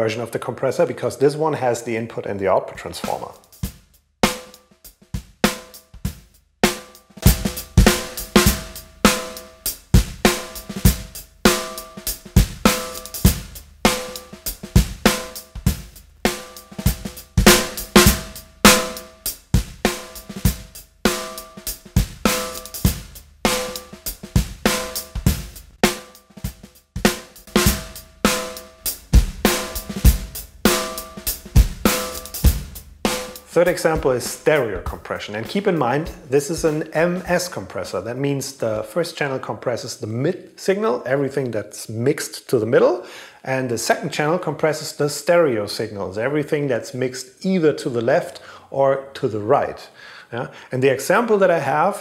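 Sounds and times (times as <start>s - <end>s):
drum kit playing a groove: 2.9s - 37.6s
punchy snare hits: 16.4s - 19.2s, 27.6s - 35.0s.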